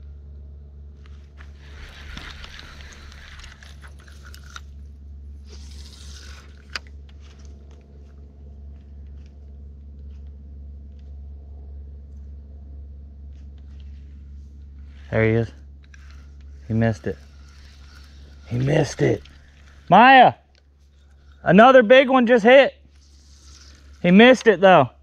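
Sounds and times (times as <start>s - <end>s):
steady low hum: 0.0s - 25.0s
faint rustling: 1.0s - 11.2s, 13.2s - 21.5s, 22.8s - 24.5s
fishing rod and reel clicking: 1.6s - 4.8s, 5.4s - 7.5s.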